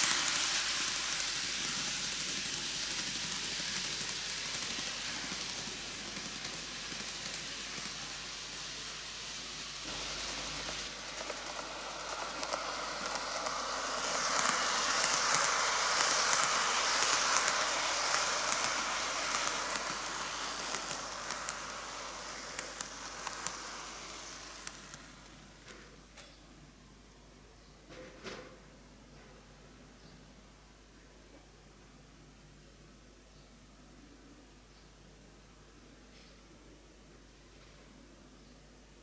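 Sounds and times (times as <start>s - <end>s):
model train running on track: 0.0s - 26.0s.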